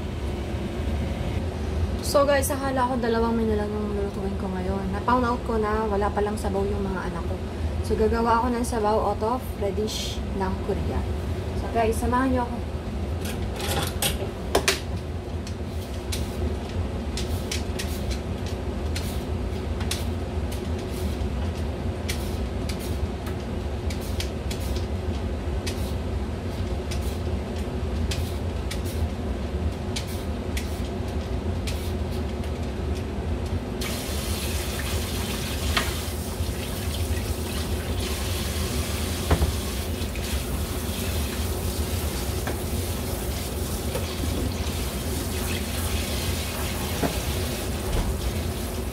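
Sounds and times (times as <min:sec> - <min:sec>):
knocks in sink: 0:39.3 - 0:39.5.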